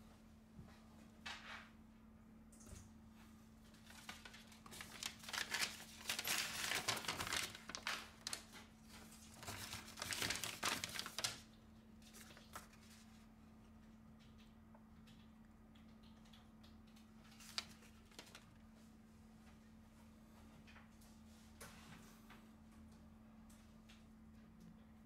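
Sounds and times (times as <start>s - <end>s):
faint electrical hum: 0.0s - 25.0s
paper crinkling: 3.7s - 13.3s, 17.2s - 18.6s.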